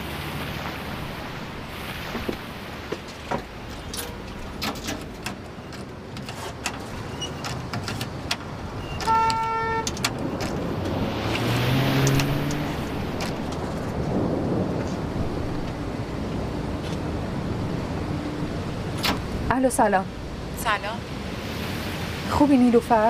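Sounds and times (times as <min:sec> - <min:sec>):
passing street traffic: 0:00.0 - 0:23.0
steady rain: 0:00.0 - 0:23.0
car horn toot: 0:08.9 - 0:10.0
vehicle engine passing: 0:10.1 - 0:19.5.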